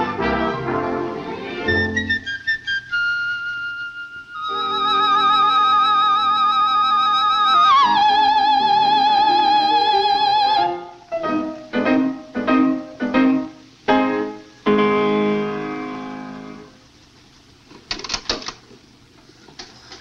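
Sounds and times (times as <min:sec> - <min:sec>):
piano chords: 0:00.0 - 0:03.1, 0:04.4 - 0:16.9
woman singing high note with vibrato: 0:04.4 - 0:10.8.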